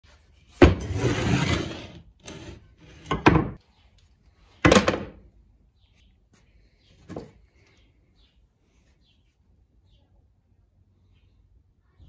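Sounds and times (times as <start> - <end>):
scraping on workbench: 0.6 - 3.6.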